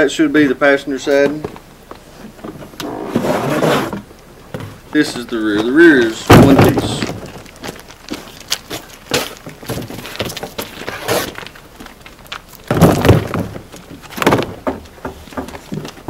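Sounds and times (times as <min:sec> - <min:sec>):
cardboard rustling: 0:01.3 - 0:16.0
plastic liners knocking and scraping: 0:05.6 - 0:16.0
heavy thunk on box: 0:06.2 - 0:07.3, 0:12.7 - 0:14.8.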